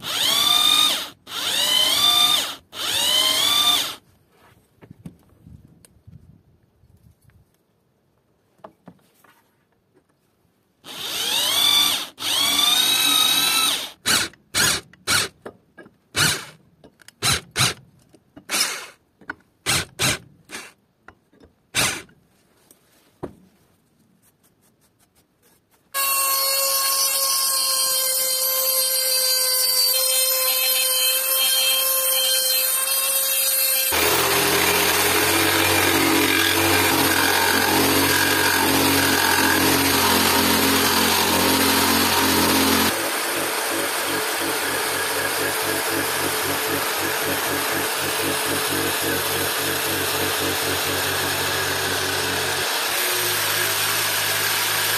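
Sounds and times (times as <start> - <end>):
electric drill boring into steel: 0.0 - 4.0, 10.9 - 15.3, 26.0 - 54.9
jigsaw cutting wood: 0.0 - 4.0, 10.8 - 15.3, 16.2 - 16.6, 21.8 - 22.1, 26.0 - 54.9
steady motor sound: 33.9 - 52.6.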